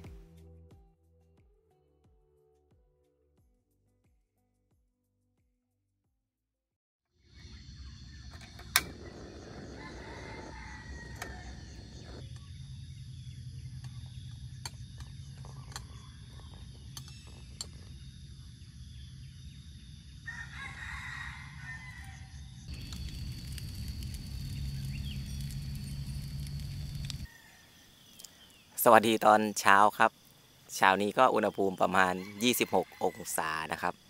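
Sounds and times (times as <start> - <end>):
rooster crowing: 9.2 - 12.2, 20.2 - 23.1, 24.4 - 27.9, 31.8 - 34.0
low hum: 22.6 - 27.3.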